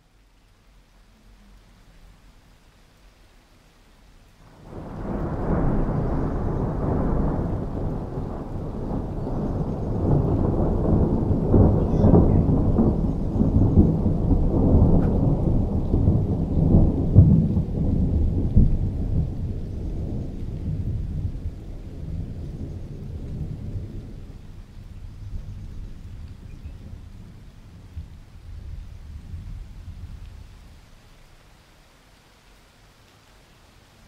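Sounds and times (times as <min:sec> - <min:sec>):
thunder claps: 0:04.5 - 0:30.7
rolling thunder: 0:04.5 - 0:31.0.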